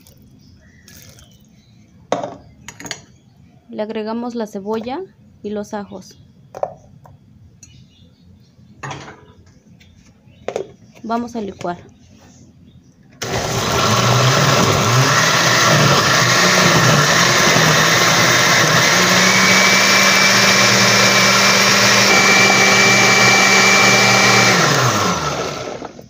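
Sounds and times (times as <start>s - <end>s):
blender motor running: 13.2s - 26.0s.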